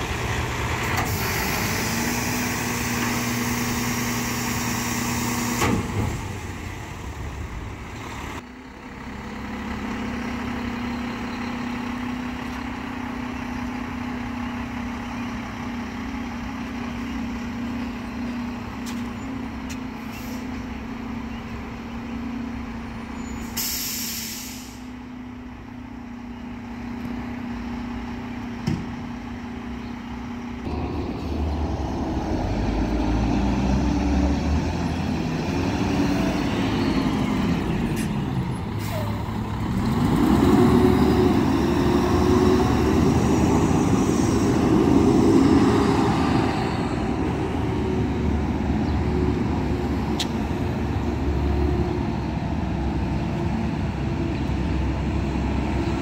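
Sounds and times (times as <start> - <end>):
garbage truck diesel engine: 0.0 - 56.0
air brake hiss: 20.0 - 20.6, 23.4 - 25.0.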